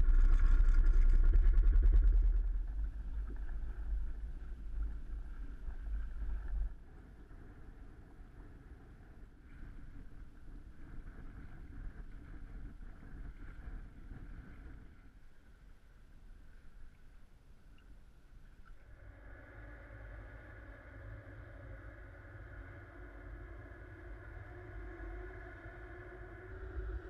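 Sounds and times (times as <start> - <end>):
wind buffeting microphone: 0.0 - 15.5.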